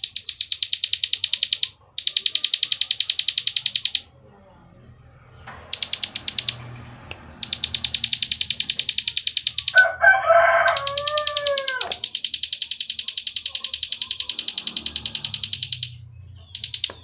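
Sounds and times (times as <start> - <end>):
bird rapid dry clicking call: 0.0 - 4.0, 5.6 - 17.0
rooster crowing: 9.6 - 12.3.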